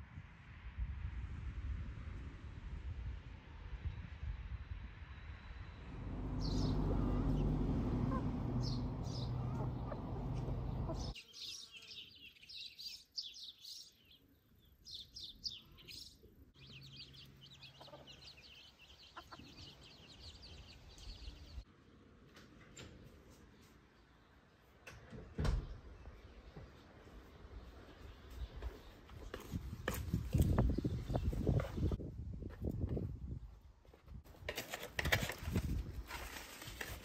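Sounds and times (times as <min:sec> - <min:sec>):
birds chirping: 0:05.8 - 0:21.7
chicks peeping: 0:06.4 - 0:12.5, 0:15.2 - 0:21.6
hen clucking: 0:07.0 - 0:11.2, 0:17.4 - 0:20.0.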